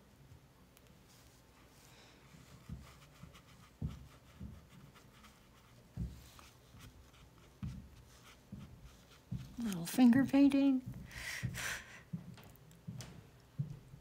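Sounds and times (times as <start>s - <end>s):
paintbrush scratching on paper: 1.1s - 10.2s.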